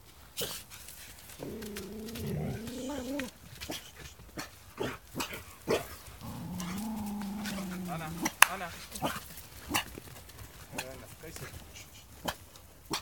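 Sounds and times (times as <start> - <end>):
dog whining: 1.4 - 3.3.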